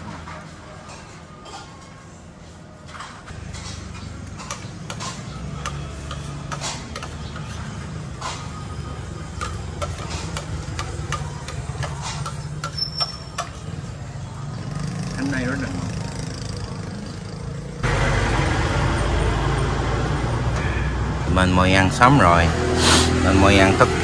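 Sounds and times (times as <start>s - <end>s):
metal spoon clinking on plate: 9.4s - 13.8s.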